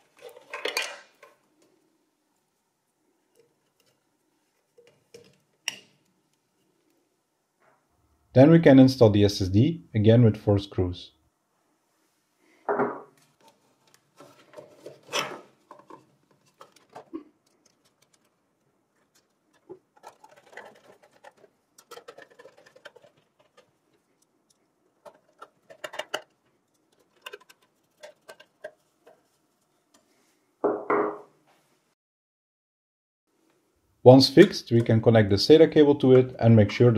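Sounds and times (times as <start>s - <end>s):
screwdriver clicks and metal rattles: 19.0s - 29.2s.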